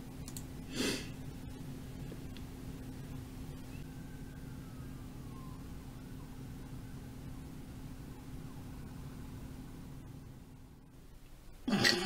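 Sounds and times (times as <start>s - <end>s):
low hum: 0.0s - 12.0s
faint tone gliding downward: 3.5s - 9.6s.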